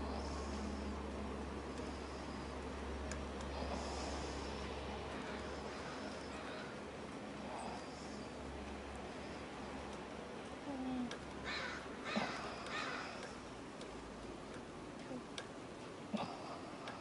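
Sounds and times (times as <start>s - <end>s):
crow cawing: 5.7s - 6.8s, 11.4s - 13.2s.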